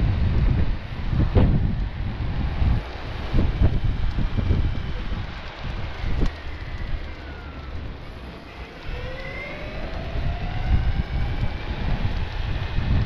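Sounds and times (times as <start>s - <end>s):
electric skateboard rumble: 0.0s - 13.0s
wind buffeting microphone: 0.0s - 13.0s
motor whine rising: 6.3s - 12.3s.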